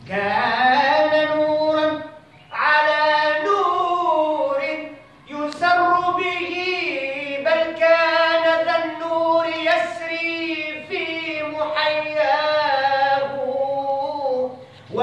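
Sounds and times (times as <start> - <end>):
man singing melismatic phrase: 0.0 - 15.0.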